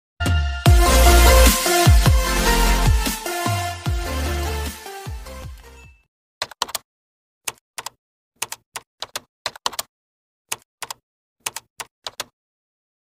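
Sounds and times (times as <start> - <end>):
keyboard keystroke clicks: 6.4 - 6.8, 7.5 - 9.9, 10.5 - 12.3.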